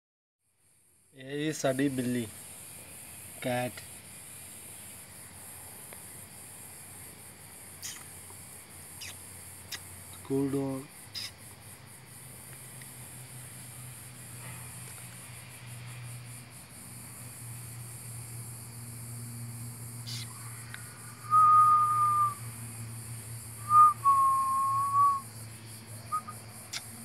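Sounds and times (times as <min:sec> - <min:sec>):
person whistling: 0:21.2 - 0:22.4, 0:23.6 - 0:25.2.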